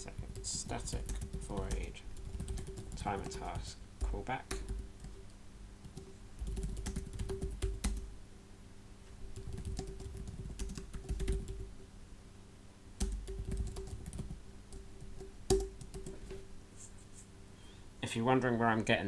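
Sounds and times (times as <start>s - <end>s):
computer keyboard typing: 0.0s - 8.1s, 9.3s - 11.7s, 13.0s - 16.2s.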